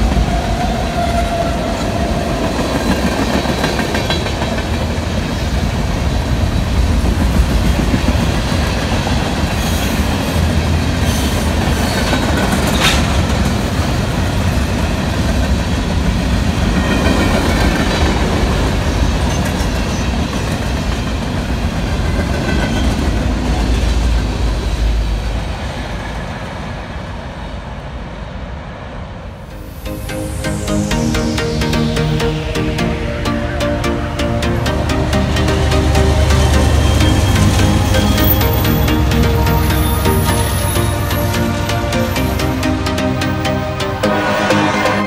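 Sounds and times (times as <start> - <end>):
freight train rumbling past: 0.0 - 45.0
wheels clickety-clack: 1.9 - 5.8, 6.4 - 24.6.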